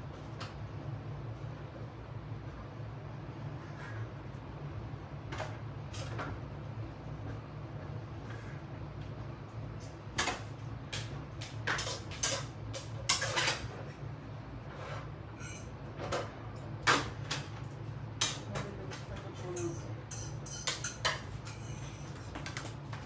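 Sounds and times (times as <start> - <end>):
steady low hum: 0.0 - 23.0
dishes and utensils clinking: 11.4 - 13.8, 14.9 - 17.1, 18.2 - 22.8.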